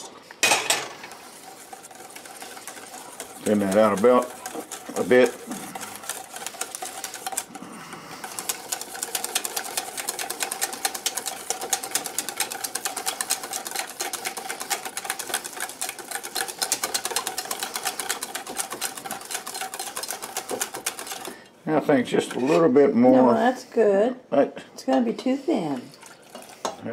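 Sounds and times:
whisk clicking against metal bowl: 0:00.5 - 0:07.6, 0:08.2 - 0:21.4, 0:25.9 - 0:26.8.

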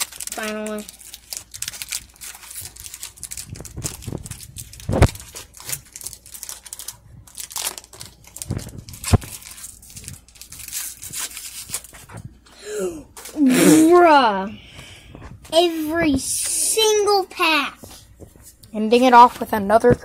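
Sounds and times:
foil wrapper crinkling and tearing: 0:00.0 - 0:12.2.

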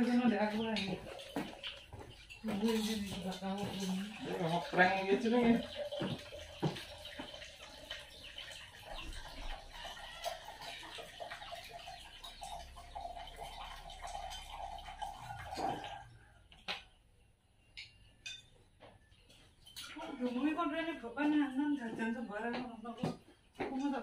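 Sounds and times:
water splashing into container: 0:00.0 - 0:16.3.

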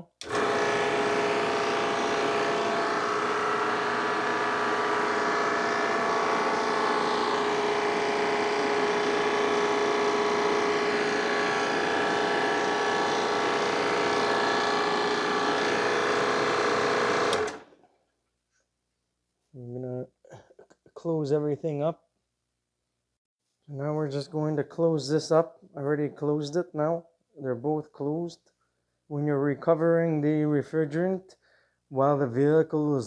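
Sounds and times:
machine motor humming: 0:00.2 - 0:17.7.

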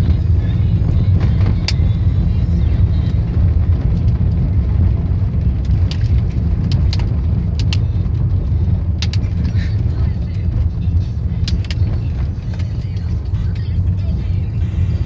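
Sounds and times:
car engine and tyre rumble: 0:00.0 - 0:15.0
sharp clicks: 0:05.6 - 0:07.9, 0:09.0 - 0:09.6, 0:11.4 - 0:13.7.

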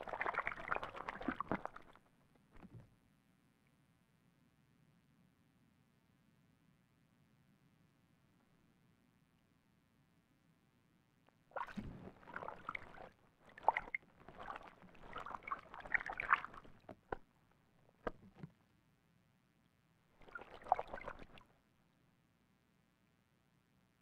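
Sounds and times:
owl splashing in water: 0:00.0 - 0:02.0, 0:11.5 - 0:17.2, 0:20.2 - 0:21.4.

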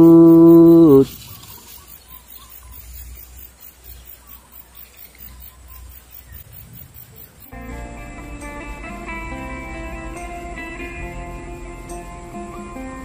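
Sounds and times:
wind rumble on microphone: 0:06.2 - 0:07.5.

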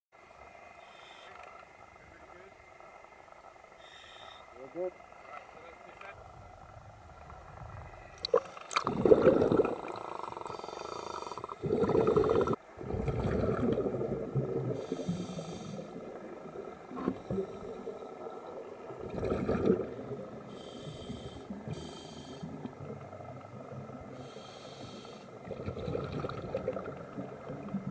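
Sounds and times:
scuba regulator bubbling exhalations: 0:08.2 - 0:27.9.

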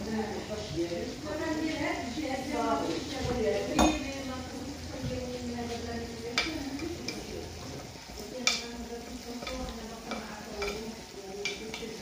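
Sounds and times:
meat sizzling: 0:00.0 - 0:12.0
spoon clicking against earthenware: 0:08.4 - 0:08.7, 0:09.4 - 0:12.0.

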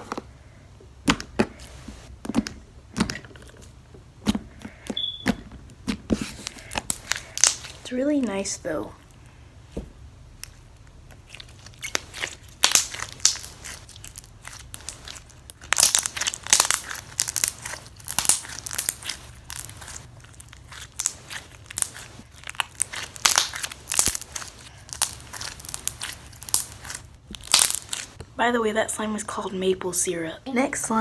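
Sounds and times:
slime squished by hand: 0:06.2 - 0:07.8, 0:10.4 - 0:28.2.

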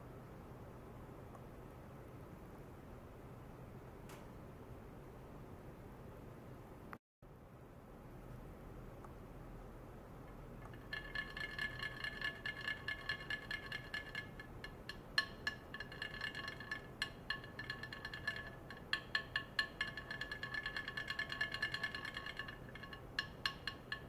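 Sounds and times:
glassy ringing tone: 0:10.7 - 0:24.0.

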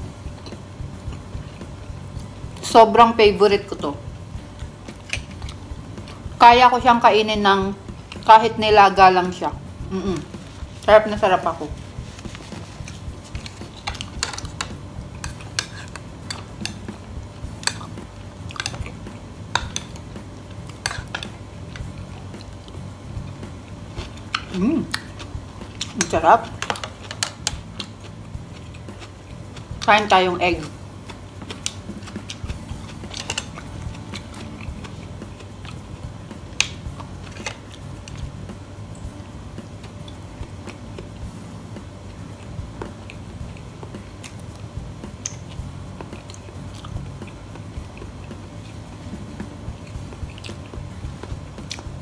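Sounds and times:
low steady hum: 0:00.0 - 0:52.0
person chewing egg: 0:26.7 - 0:29.8, 0:31.1 - 0:38.3, 0:45.2 - 0:48.8.

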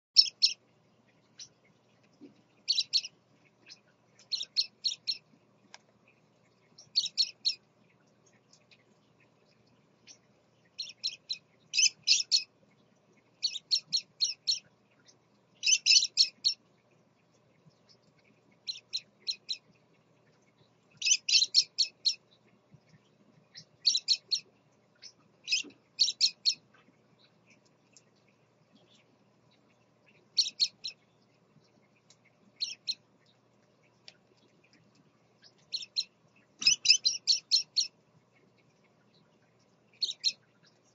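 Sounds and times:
parakeets chirping: 0:00.2 - 0:00.6, 0:02.6 - 0:05.3, 0:06.8 - 0:07.6, 0:10.8 - 0:12.5, 0:13.4 - 0:16.6, 0:21.0 - 0:22.3, 0:23.5 - 0:26.6, 0:28.8 - 0:31.0, 0:32.6 - 0:33.1, 0:35.4 - 0:37.9, 0:39.9 - 0:40.8.

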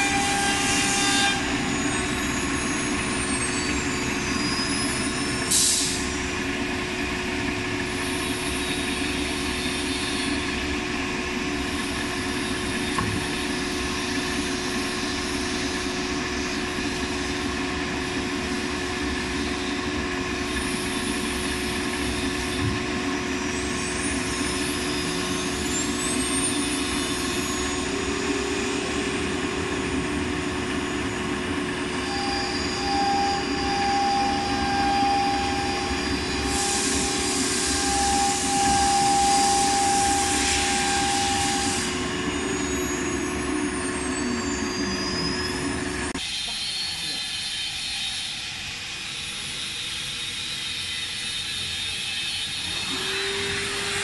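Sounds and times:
spindle whine: 0:23.4 - 0:46.2.

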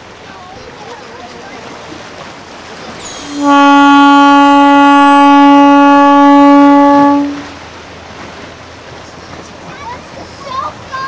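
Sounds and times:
boat horn blast: 0:02.9 - 0:07.9.

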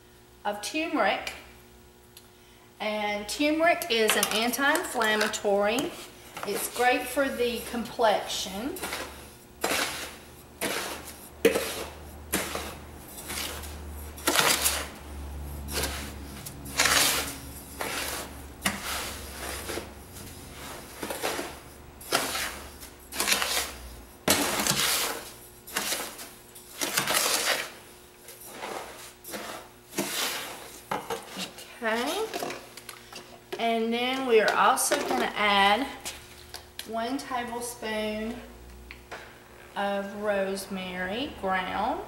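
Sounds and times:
metal spoon scraping through salt: 0:06.5 - 0:15.0, 0:28.4 - 0:32.3.

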